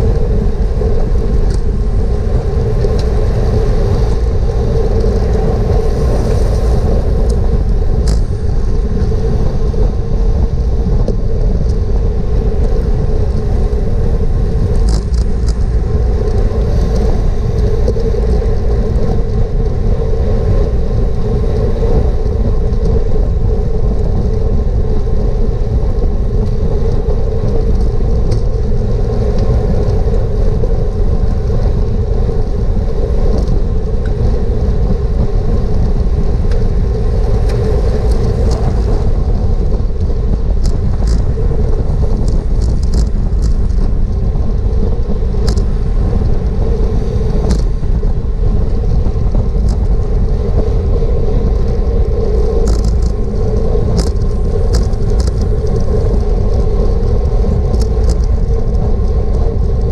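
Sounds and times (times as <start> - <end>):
wind rush on microphone: 0.0 - 59.9.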